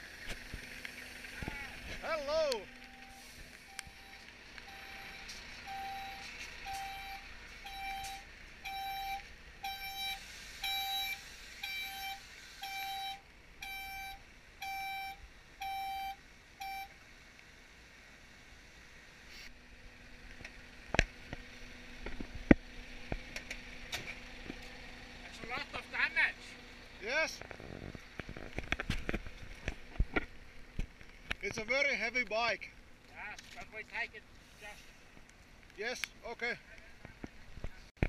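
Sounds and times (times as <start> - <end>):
truck reversing alarm beeping: 2.2 - 16.9.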